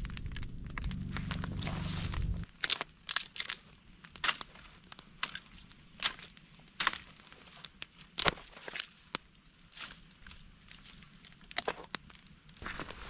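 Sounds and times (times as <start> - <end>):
campfire wood cracking: 0.0 - 13.0.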